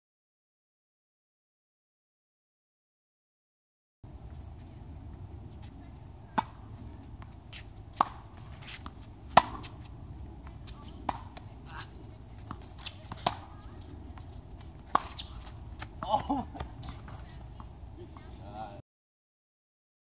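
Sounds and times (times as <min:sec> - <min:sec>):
tennis balls struck by rackets: 0:04.2 - 0:18.4.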